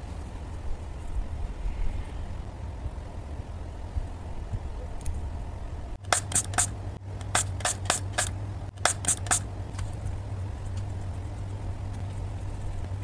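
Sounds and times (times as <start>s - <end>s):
steady low hum: 0.0s - 13.0s
spray bottle squirting water: 6.0s - 9.5s.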